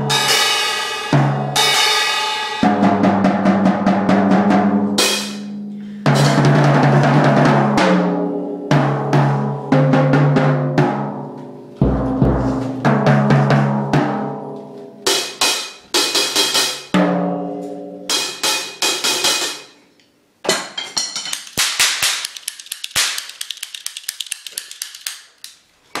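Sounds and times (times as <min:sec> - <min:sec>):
drum strokes: 0:11.8 - 0:14.3.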